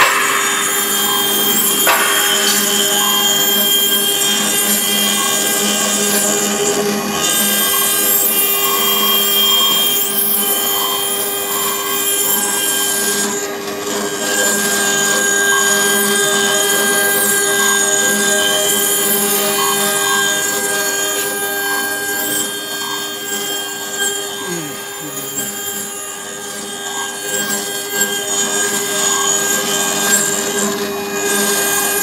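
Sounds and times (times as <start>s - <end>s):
spindle whine: 0.0s - 4.4s.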